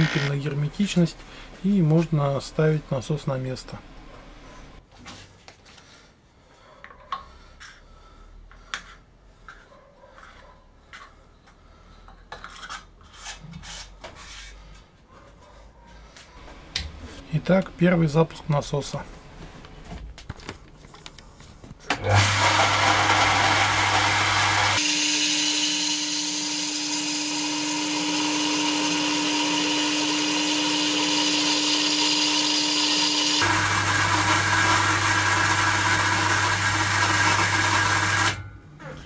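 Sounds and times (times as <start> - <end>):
electric water pump running: 0.0 - 0.3, 22.0 - 38.4.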